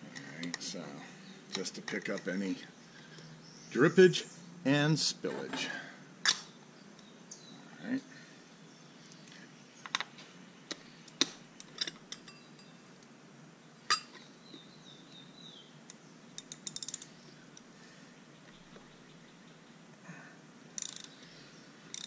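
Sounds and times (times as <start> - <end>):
metal tool clicking on engine: 20.8 - 21.2.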